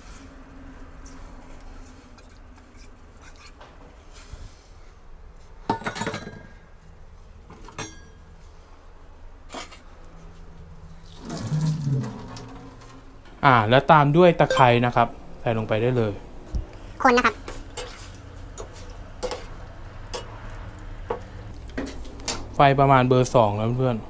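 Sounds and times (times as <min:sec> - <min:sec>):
metal bowl and pot clinking: 0:07.7 - 0:08.2.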